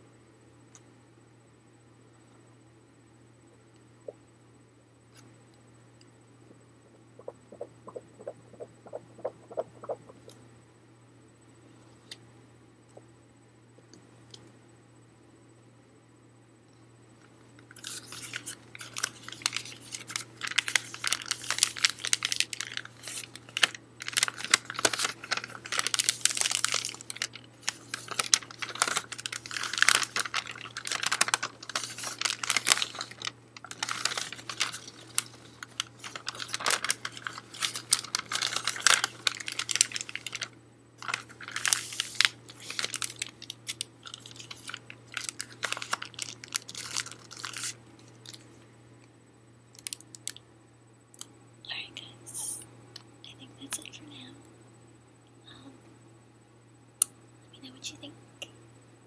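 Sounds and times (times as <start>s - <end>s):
wrapping paper crumpling: 17.8s - 48.5s.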